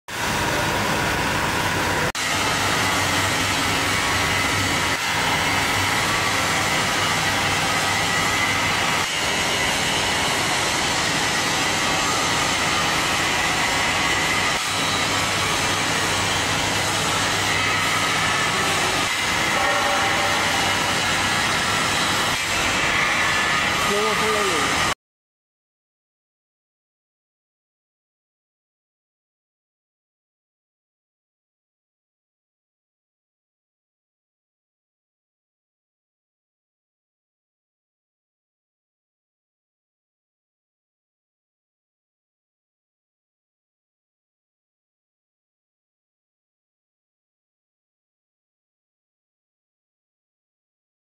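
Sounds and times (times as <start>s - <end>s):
textile machinery running: 0.1s - 25.0s.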